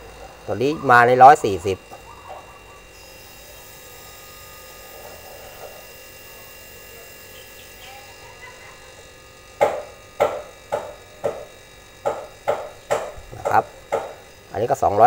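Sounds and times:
refrigerator compressor buzz: 0.0 - 15.0.

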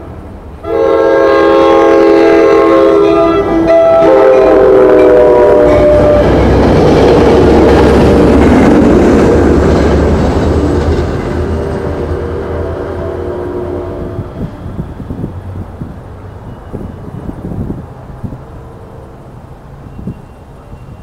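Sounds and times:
train horn: 0.6 - 6.6, 11.9 - 15.0
train wheels clattering over rails: 5.0 - 12.6.

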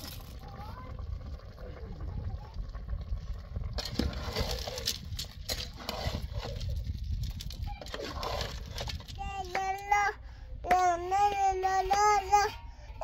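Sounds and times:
low steady rumble: 0.0 - 13.0
metal ladle stirring a steel pot: 3.8 - 9.1.

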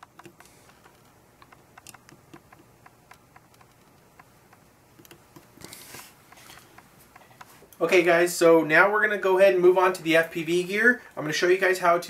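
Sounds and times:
light clicks and ticks: 0.0 - 5.7.

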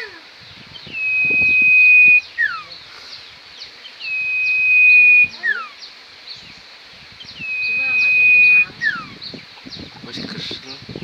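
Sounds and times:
bird whistling song: 0.7 - 2.8, 3.9 - 6.6, 7.2 - 9.9.

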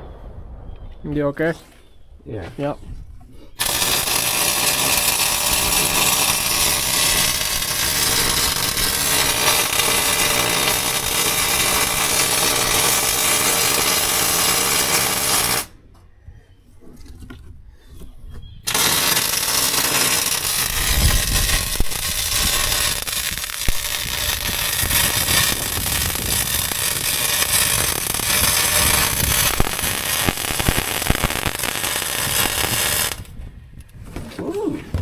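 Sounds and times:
electric welding arc crackling: 3.6 - 15.7, 18.7 - 33.3.

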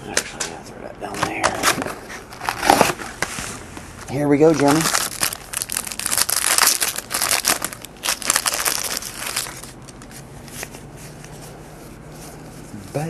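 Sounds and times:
plastic wrapper crinkling and tearing: 1.4 - 3.2, 4.4 - 10.6.

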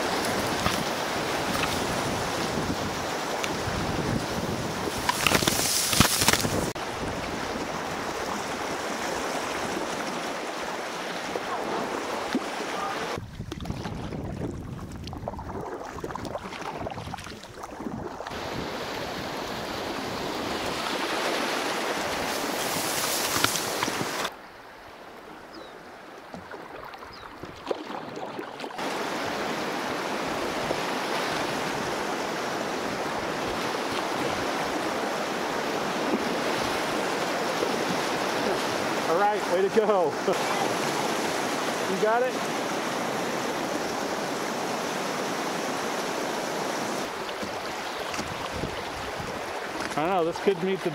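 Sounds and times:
river water rushing and splashing: 0.0 - 50.9
reeds brushing past microphone: 4.9 - 6.8.

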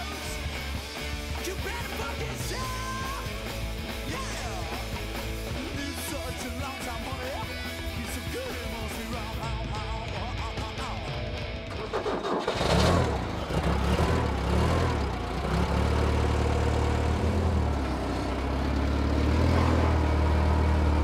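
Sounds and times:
forklift engine starting and revving: 11.2 - 21.0.

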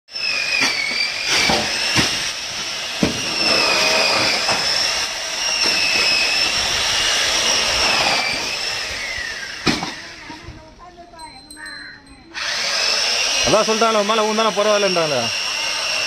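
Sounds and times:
machine whining: 0.1 - 10.4, 12.3 - 16.0.

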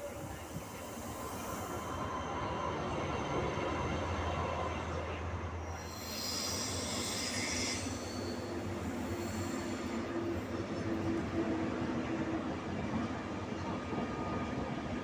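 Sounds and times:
diesel locomotive engine humming: 0.0 - 15.0
steel wheel squeal: 5.8 - 10.0.

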